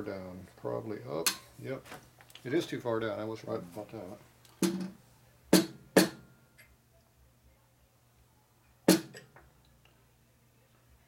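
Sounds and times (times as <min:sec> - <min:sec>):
hammer tapping metal: 0:05.6 - 0:06.3.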